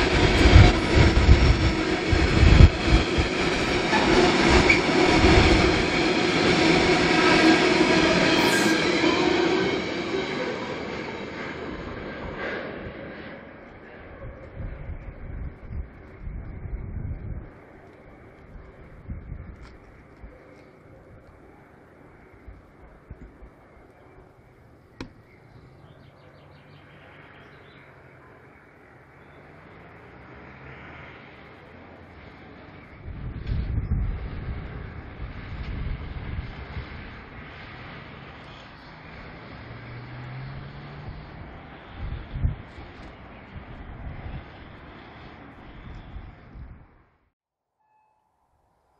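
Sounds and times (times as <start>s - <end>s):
train wheels rumbling on rails: 0.0s - 25.9s
held tone: 8.2s - 9.8s
bird chirping: 24.8s - 29.5s.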